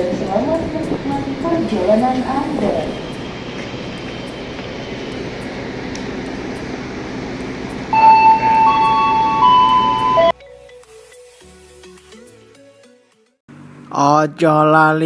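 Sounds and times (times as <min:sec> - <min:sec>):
train idling at platform: 0:00.0 - 0:10.3
loud train horn: 0:07.9 - 0:10.3.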